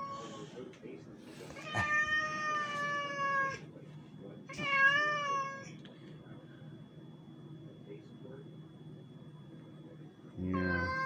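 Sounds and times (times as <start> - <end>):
cat meowing: 4.5 - 5.7, 10.5 - 11.0.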